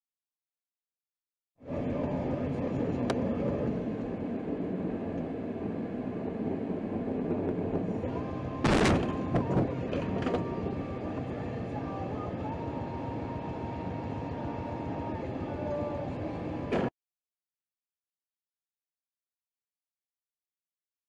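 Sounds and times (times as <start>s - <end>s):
road noise: 1.6s - 16.9s.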